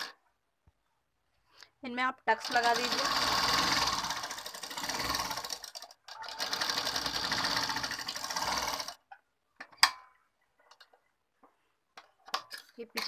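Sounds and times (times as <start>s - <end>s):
sewing machine stitching: 2.3s - 9.0s.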